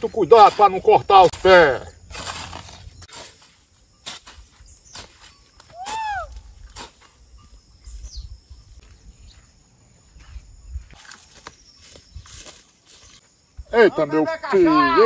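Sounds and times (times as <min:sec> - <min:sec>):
hoe chopping dry soil: 0:00.0 - 0:07.3.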